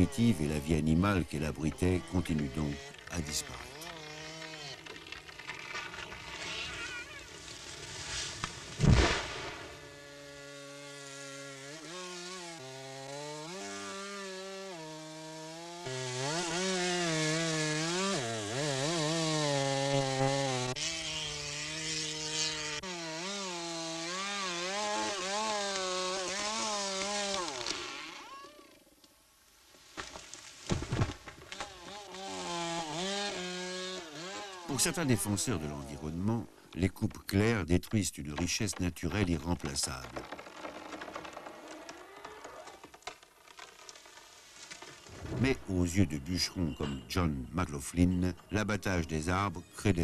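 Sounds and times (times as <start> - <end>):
chainsaw cutting wood: 0.0 - 28.9, 30.0 - 36.3, 38.4 - 45.5
loud sharp thump: 8.8 - 9.7.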